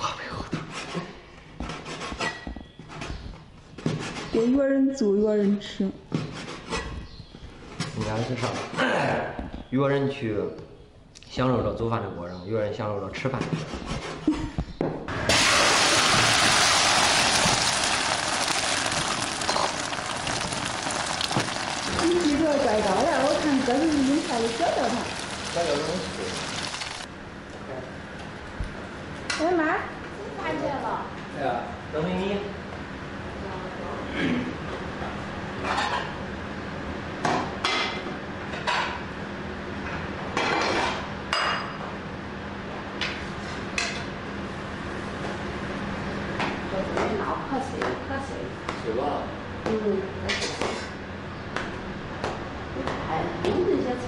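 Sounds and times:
egg frying in hot oil: 15.3s - 27.1s.

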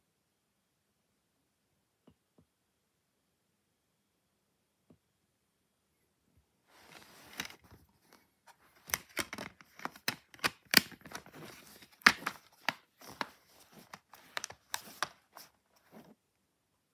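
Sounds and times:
plastic rustling: 6.7s - 16.1s
plastic case clicks and snaps: 8.8s - 13.3s.

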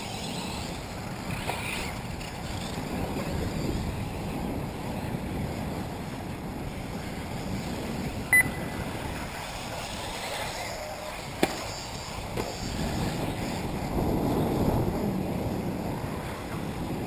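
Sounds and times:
wind rushing over microphone: 0.0s - 17.0s
short high electronic beep: 8.3s - 8.6s.

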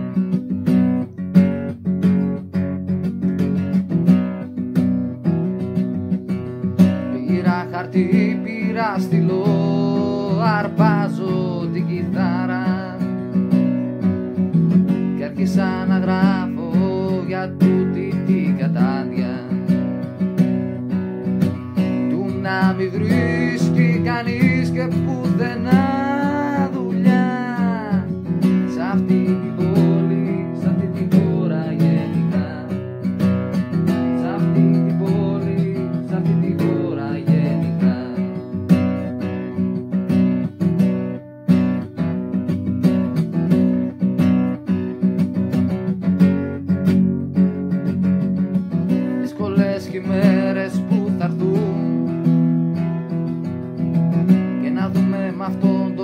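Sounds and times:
acoustic guitar strumming: 0.0s - 56.0s.

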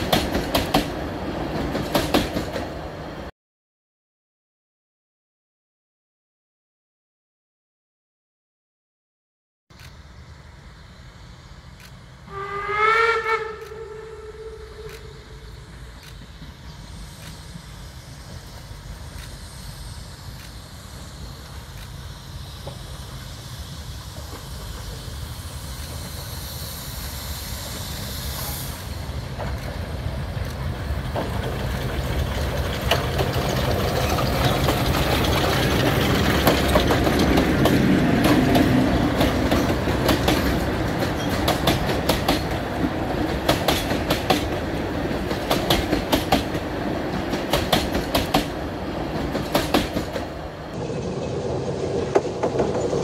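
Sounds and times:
wheels clicking over rail joints: 0.0s - 2.8s, 29.3s - 53.0s
steam train rumbling past: 0.0s - 3.3s, 9.9s - 53.0s.

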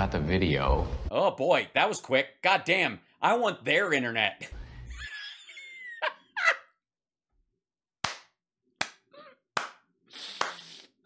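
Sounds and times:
breathy laughter: 4.8s - 6.8s
man clapping hands: 8.0s - 10.7s.

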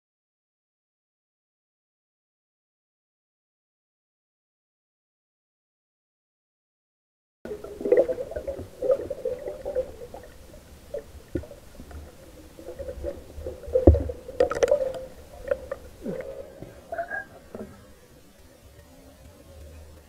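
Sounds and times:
underwater knocks: 7.5s - 17.8s
underwater gurgling and bubbling: 7.5s - 18.2s
underwater clicks: 7.5s - 20.0s.

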